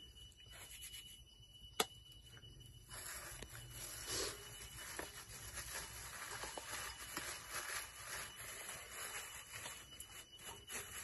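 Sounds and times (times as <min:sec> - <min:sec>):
plastic bag crinkling: 0:02.8 - 0:11.0.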